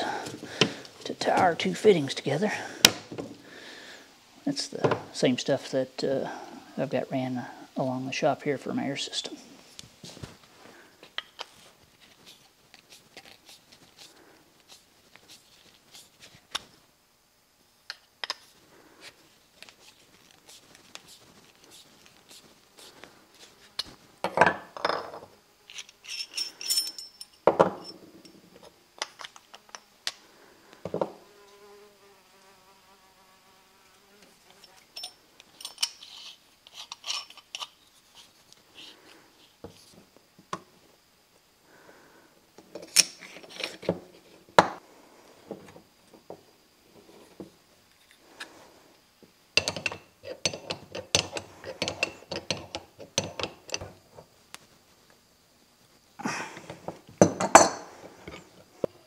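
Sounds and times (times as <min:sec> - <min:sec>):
metal fittings clinking: 0:25.7 - 0:28.4, 0:34.7 - 0:37.8.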